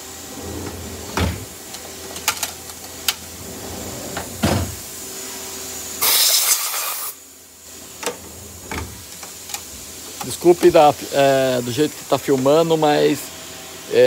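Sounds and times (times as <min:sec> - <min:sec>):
factory machine hum: 0:00.0 - 0:14.0
air blow gun hissing: 0:04.4 - 0:14.0.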